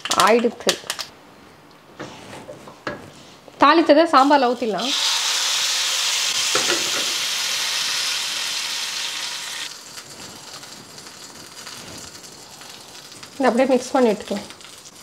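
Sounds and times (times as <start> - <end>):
spices sizzling in hot ghee: 4.1 - 15.0.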